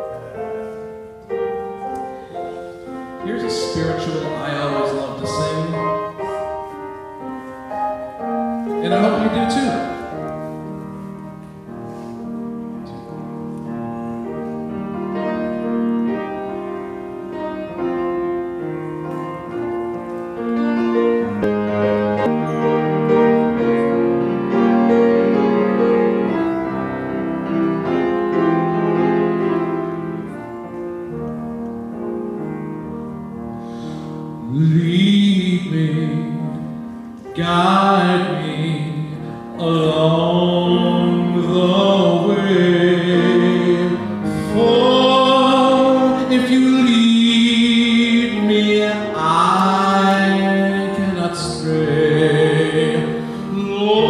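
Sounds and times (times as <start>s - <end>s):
grand piano playing: 0.0s - 54.0s
man singing: 3.2s - 6.5s, 8.8s - 10.3s, 34.4s - 54.0s.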